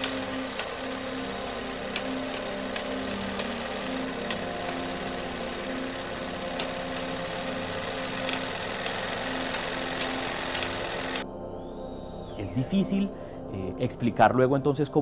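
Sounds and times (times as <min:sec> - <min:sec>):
machine drone with hiss and hum: 0:00.0 - 0:11.2
sharp clicks: 0:00.0 - 0:11.2.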